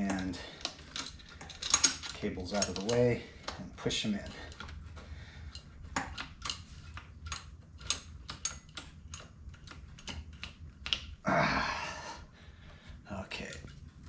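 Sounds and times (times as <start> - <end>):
clicks and knocks of handled parts: 0.0 - 11.3, 12.8 - 14.0.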